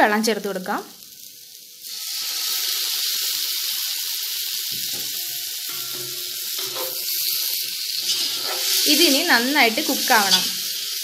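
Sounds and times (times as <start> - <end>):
water sizzling in hot pan: 0.0 - 11.0.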